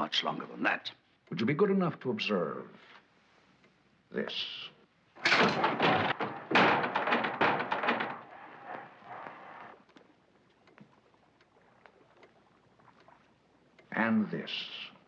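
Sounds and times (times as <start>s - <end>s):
heavy knock: 5.2s - 8.3s
trapdoor rattling: 5.2s - 9.7s
trapdoor thunk and clatter: 5.2s - 9.7s.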